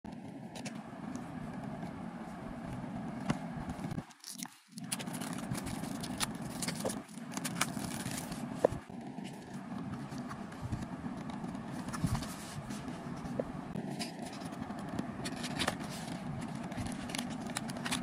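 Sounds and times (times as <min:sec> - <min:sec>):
cellophane crinkling: 0:04.0 - 0:09.5, 0:14.0 - 0:18.0
low background rumble: 0:04.8 - 0:18.0.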